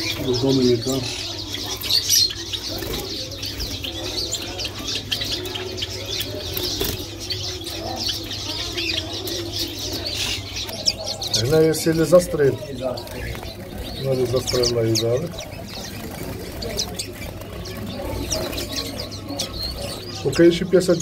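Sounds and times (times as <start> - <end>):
finches chirping: 0.0 - 21.0
wings fluttering: 12.1 - 20.1.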